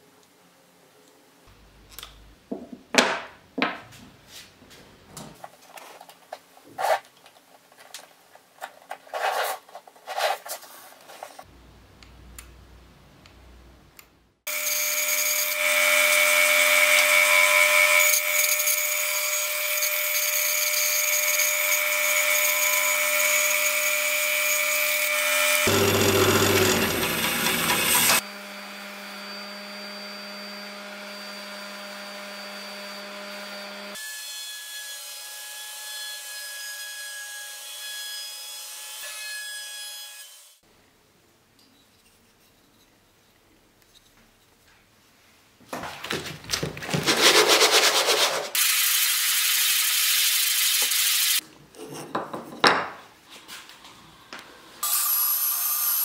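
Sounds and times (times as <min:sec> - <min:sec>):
bandsaw cutting wood: 0:14.5 - 0:28.2.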